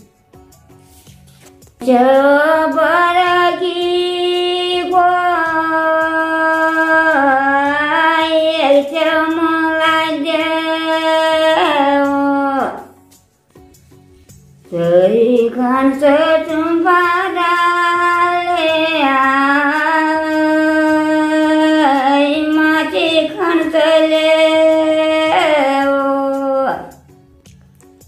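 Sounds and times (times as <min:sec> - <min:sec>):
elderly woman singing unaccompanied: 0:01.8 - 0:13.0, 0:14.7 - 0:27.0.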